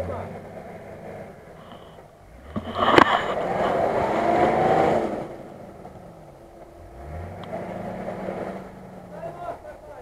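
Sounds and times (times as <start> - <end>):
suv engine revving hard: 2.2 - 9.6.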